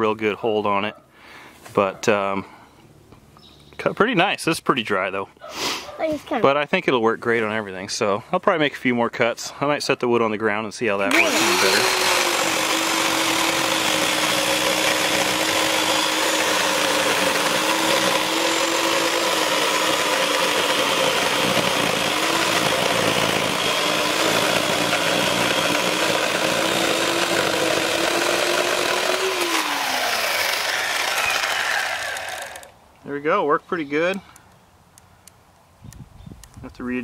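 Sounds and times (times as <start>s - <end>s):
electric chainsaw cutting log: 11.0s - 32.8s.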